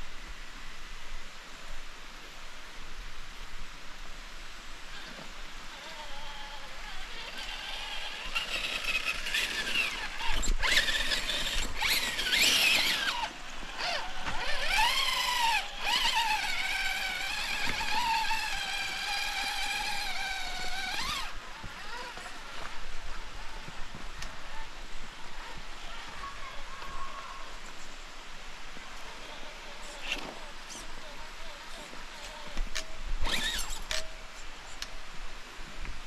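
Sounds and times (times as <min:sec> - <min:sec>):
electric motor and gears whining: 0:04.9 - 0:22.8, 0:32.2 - 0:34.1.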